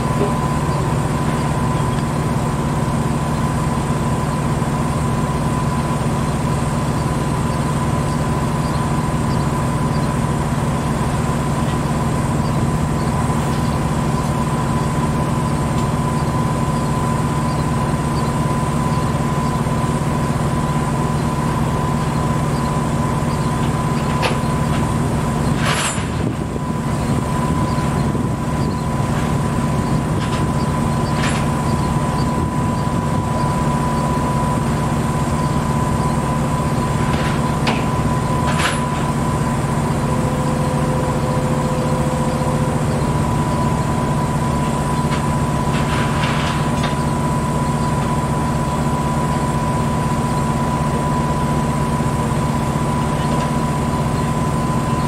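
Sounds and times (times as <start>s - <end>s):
diesel engine idling: 0.0s - 55.0s.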